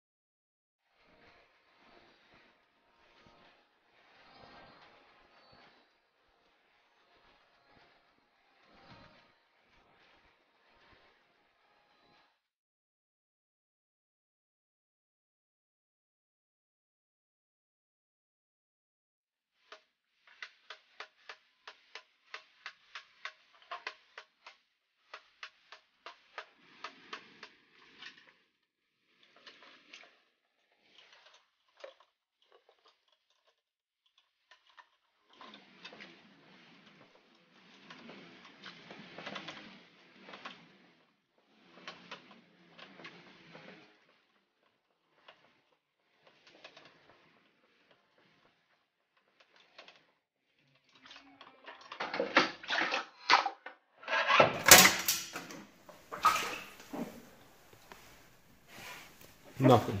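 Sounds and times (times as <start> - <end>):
metal boxes scraping and clanking: 54.1 - 60.0
crowbar prying metal doors: 54.4 - 55.4.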